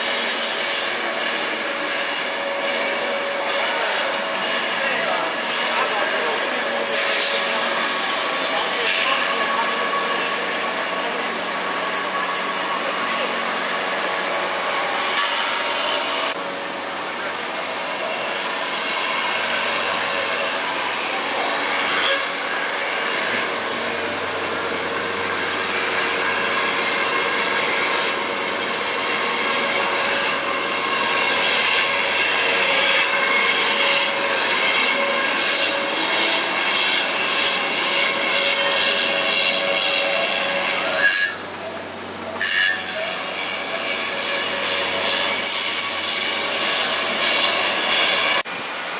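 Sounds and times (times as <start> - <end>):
hiss of foam being cut: 0.0 - 11.2
high-pitched cutter whine: 0.0 - 48.5.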